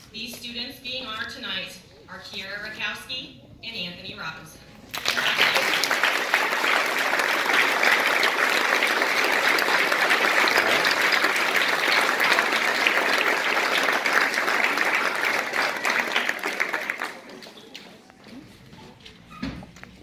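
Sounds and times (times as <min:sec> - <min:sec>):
audience applause: 0:04.9 - 0:18.0.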